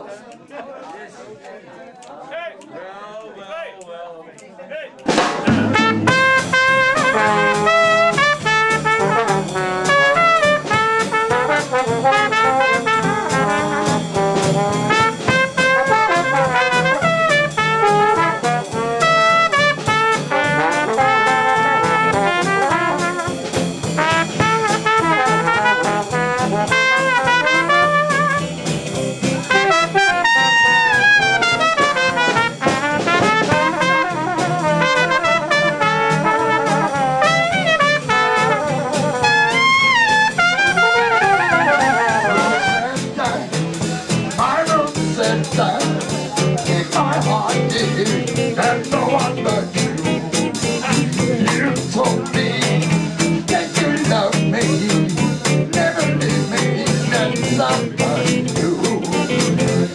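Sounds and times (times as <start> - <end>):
drum kit and cymbals: 5.0 - 59.9
jazz band playing: 5.0 - 59.9
trombone: 5.1 - 59.9
trumpet: 5.2 - 43.4.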